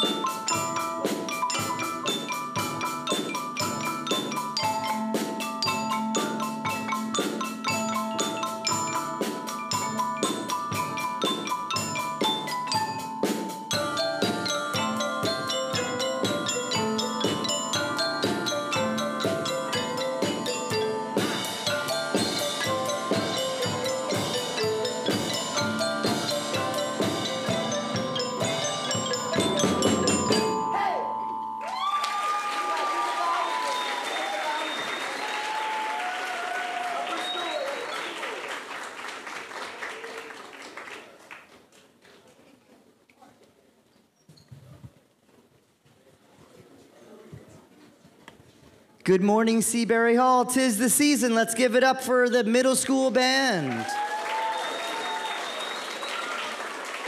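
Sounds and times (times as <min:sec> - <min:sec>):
steady drum beat: 0:00.0 - 0:30.6
marimbas and xylophones: 0:00.0 - 0:32.0.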